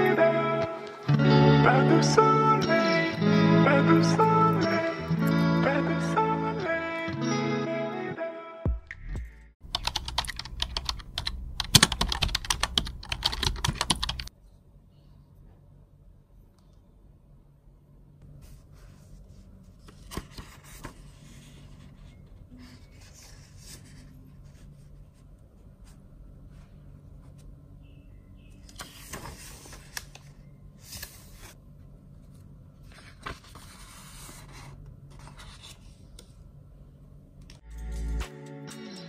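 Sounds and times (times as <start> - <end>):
book pages rustling: 18.4 - 26.0, 28.6 - 31.6, 32.2 - 36.3.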